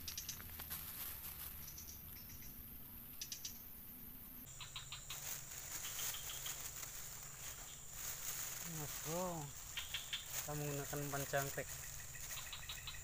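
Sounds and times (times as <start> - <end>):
plastic bag crinkling: 0.3 - 1.7, 5.1 - 13.0.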